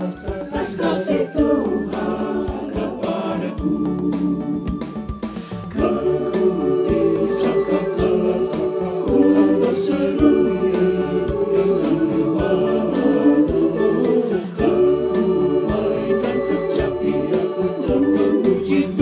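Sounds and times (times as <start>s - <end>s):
choir singing a hymn: 0.0s - 19.0s
instrumental accompaniment: 0.0s - 19.0s
low beat: 0.3s - 14.0s.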